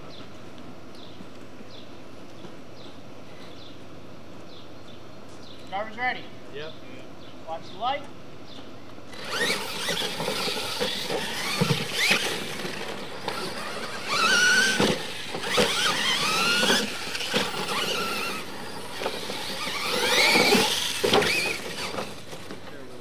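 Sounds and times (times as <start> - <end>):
electric motors whining: 9.0 - 23.0
toy trucks landing knocks: 9.1 - 22.6.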